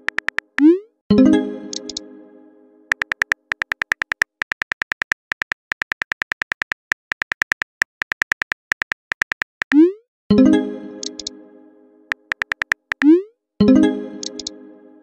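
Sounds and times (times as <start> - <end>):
phone keyboard taps: 0.0 - 0.6, 2.9 - 9.8, 12.1 - 13.1.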